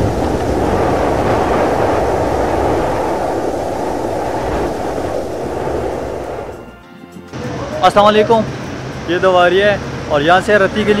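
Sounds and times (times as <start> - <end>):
muffled rumbling roar: 0.0 - 6.6.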